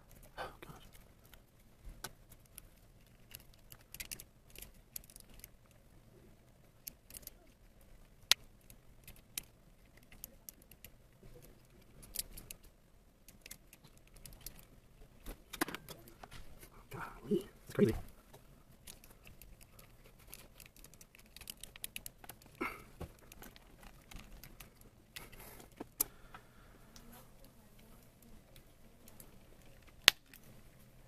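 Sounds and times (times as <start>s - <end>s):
plastic action figure clicking: 2.0s - 5.5s.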